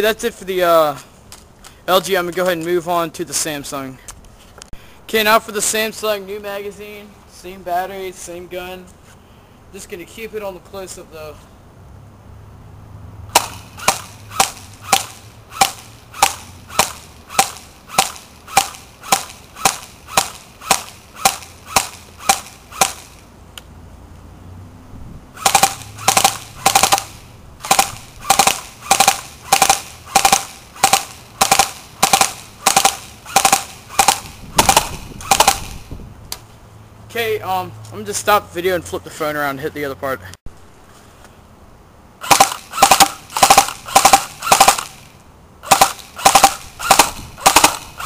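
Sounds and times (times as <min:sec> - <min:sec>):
airsoft gun shots: 0:13.3 - 0:23.2, 0:25.4 - 0:35.9, 0:42.2 - 0:48.0.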